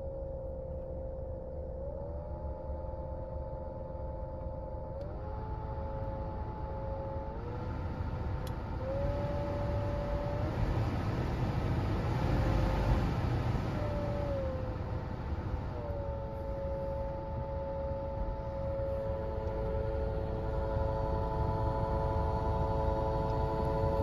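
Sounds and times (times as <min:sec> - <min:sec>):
heater blower fan humming: 0:00.0 - 0:24.0.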